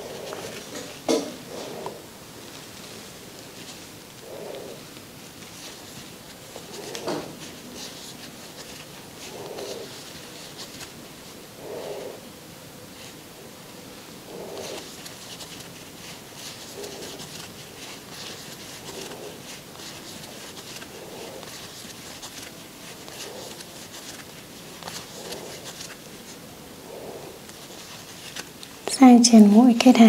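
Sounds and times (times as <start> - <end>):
crochet hook scratching yarn: 0.0 - 2.0, 3.6 - 11.0, 14.3 - 28.9
soft breaths: 0.0 - 28.9.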